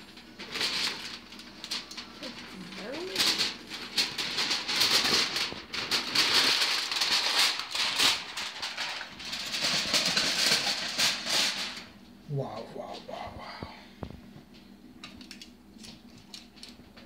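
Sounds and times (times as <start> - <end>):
aluminium foil crinkling: 0.0 - 12.7, 14.5 - 17.0.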